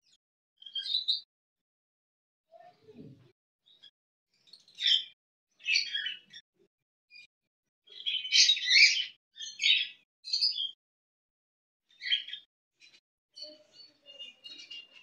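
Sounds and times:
budgerigars chirping: 0:04.8 - 0:06.4, 0:08.0 - 0:10.7.

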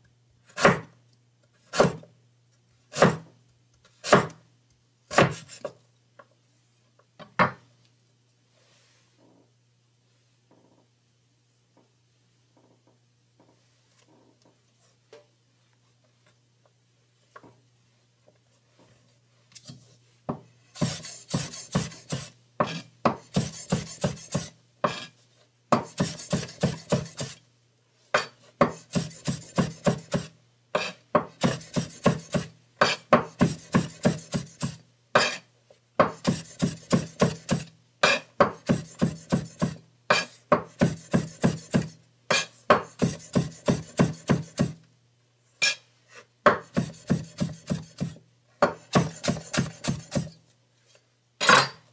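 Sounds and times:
knife chopping on wooden board: 0:00.6 - 0:00.9, 0:01.7 - 0:02.0, 0:02.9 - 0:03.3, 0:04.0 - 0:04.4, 0:05.1 - 0:05.7, 0:20.8 - 0:25.1, 0:25.7 - 0:27.4, 0:28.2 - 0:35.4, 0:36.0 - 0:44.8, 0:46.4 - 0:50.3.

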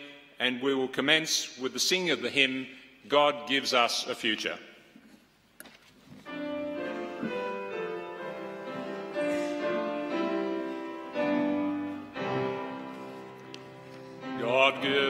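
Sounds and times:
piano playing slow chords: 0:06.3 - 0:15.0.

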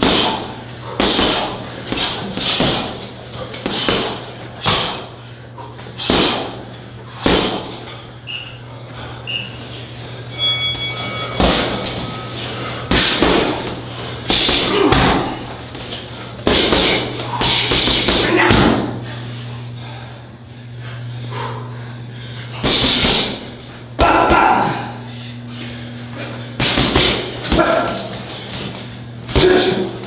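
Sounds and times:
punches and kicks thudding: 0:00.0 - 0:03.0, 0:03.6 - 0:05.1, 0:06.0 - 0:06.6, 0:07.2 - 0:07.7, 0:11.4 - 0:11.8, 0:12.9 - 0:15.5, 0:16.4 - 0:19.0, 0:26.6 - 0:28.0, 0:29.3 - 0:29.9.

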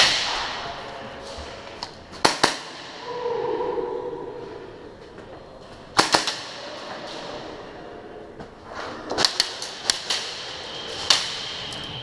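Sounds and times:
airsoft gun shots: 0:02.2 - 0:03.0.

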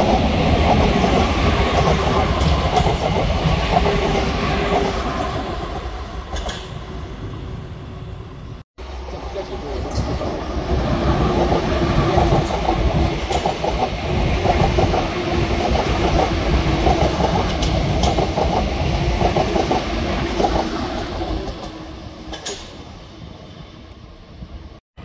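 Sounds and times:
train hum: 0:00.0 - 0:24.8
train wheels clattering: 0:05.8 - 0:06.8, 0:11.2 - 0:22.9.

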